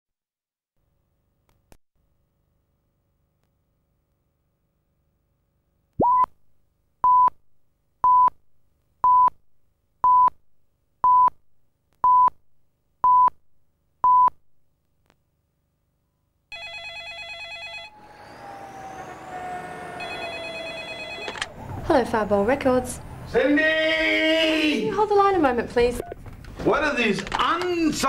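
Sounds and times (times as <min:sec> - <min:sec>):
telephone ringing: 0:16.5 - 0:18.1, 0:20.0 - 0:21.6.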